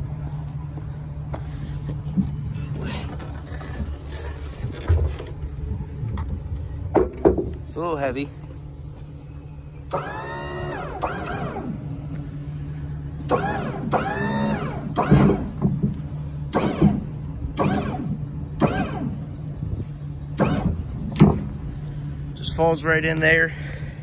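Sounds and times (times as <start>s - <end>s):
steady low hum: 0.0s - 24.0s
hinges squealing: 13.2s - 15.9s.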